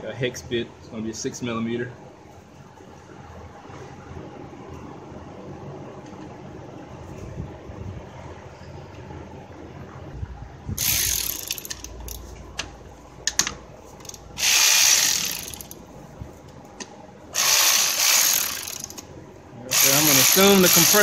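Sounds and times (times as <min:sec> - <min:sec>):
socket ratchet clicking: 0:10.8 - 0:12.2, 0:14.0 - 0:15.8, 0:17.4 - 0:19.0.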